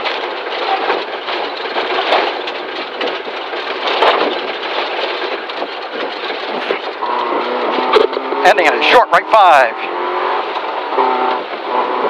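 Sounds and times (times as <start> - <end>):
rally car engine and gravel noise: 0.0 - 12.0.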